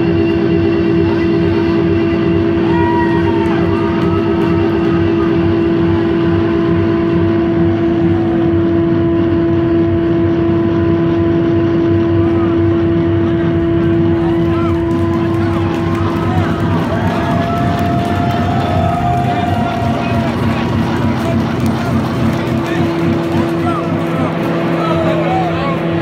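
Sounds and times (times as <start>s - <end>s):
guitar amplifier feedback drone: 0.0s - 26.0s
crowd shouting: 2.3s - 6.0s, 13.8s - 26.0s.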